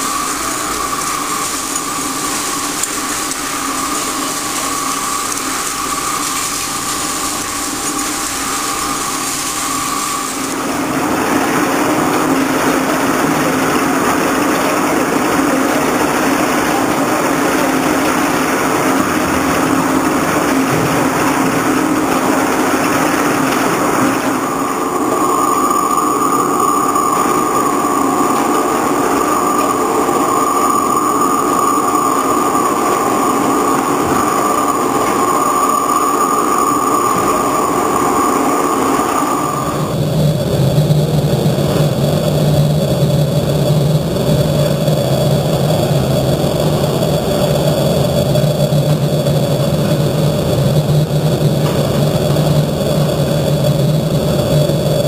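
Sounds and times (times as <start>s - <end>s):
lathe cutting steel: 0.0s - 40.7s
high machine whine: 0.0s - 55.0s
machine hum: 0.0s - 55.0s.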